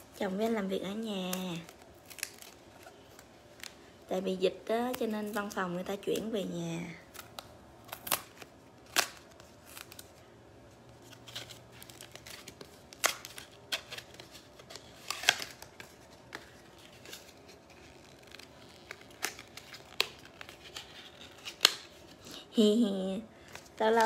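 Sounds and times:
packaging crinkling and tearing: 0:00.0 - 0:22.4
sharp packaging snaps: 0:01.1 - 0:03.8, 0:07.1 - 0:10.1, 0:11.1 - 0:22.0.

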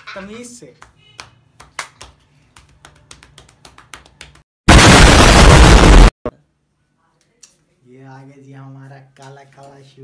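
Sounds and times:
loud blast of distorted noise: 0:04.7 - 0:06.2.

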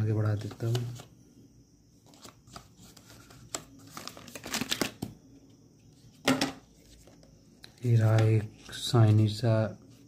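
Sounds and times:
paper and plastic packaging rustling: 0:02.0 - 0:05.1.

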